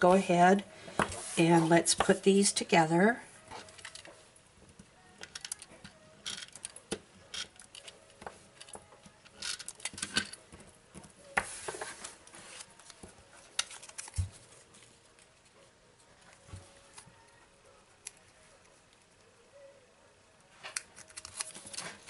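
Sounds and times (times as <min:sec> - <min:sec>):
paper rustling: 0:11.3 - 0:15.6, 0:20.6 - 0:22.0.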